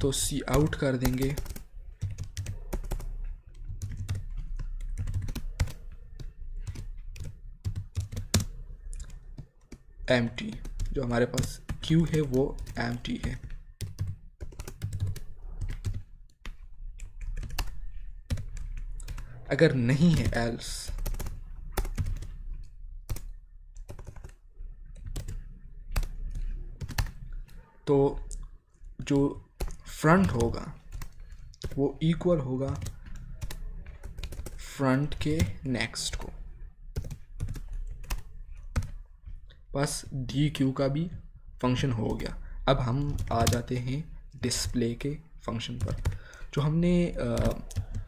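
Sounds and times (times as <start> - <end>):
typing on computer keyboard: 0.5 - 9.8, 10.4 - 19.3, 20.0 - 27.7, 29.3 - 31.8, 32.6 - 36.3, 37.0 - 39.5, 43.0 - 44.8, 45.6 - 46.6, 47.3 - 48.0.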